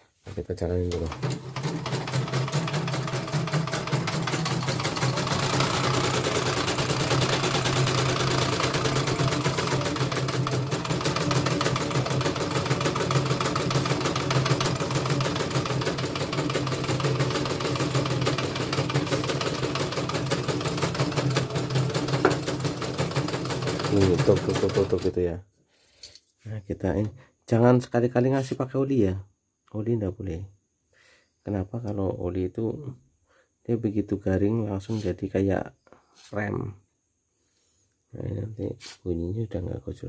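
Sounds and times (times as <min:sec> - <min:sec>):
embroidery machine needle clatter: 0:00.9 - 0:25.2.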